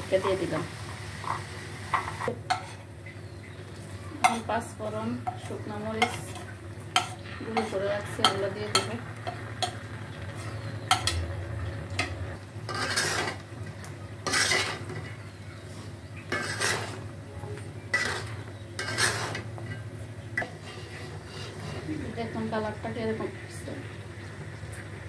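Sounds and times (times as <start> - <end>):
spatula scraping a pan: 2.0 - 2.9, 4.2 - 4.6, 5.2 - 11.3, 12.0 - 13.6, 14.2 - 17.1, 17.9 - 22.4.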